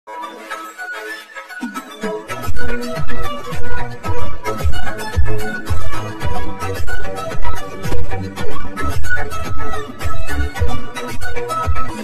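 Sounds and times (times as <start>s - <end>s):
light instrumental tune: 0.1s - 12.0s.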